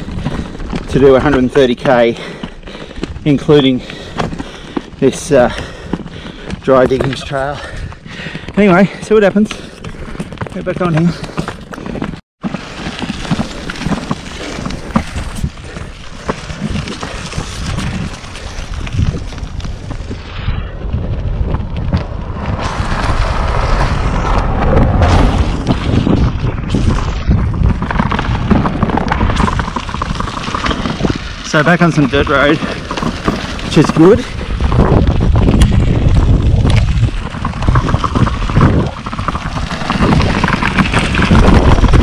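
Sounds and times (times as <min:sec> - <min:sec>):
bike tyres crunching on gravel: 0:00.0 - 0:42.0
wind buffeting microphone: 0:14.3 - 0:42.0.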